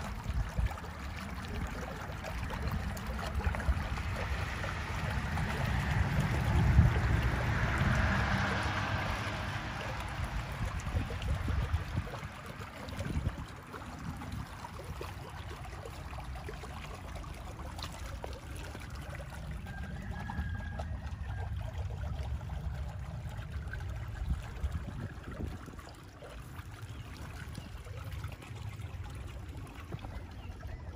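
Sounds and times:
steady low rumble: 0.0 - 14.8
water trickling into pond: 0.0 - 30.9.

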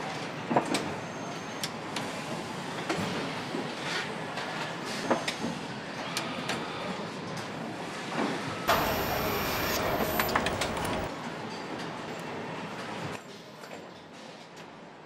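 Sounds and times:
loud hissing: 8.7 - 11.1
machinery hum: 8.7 - 11.1.

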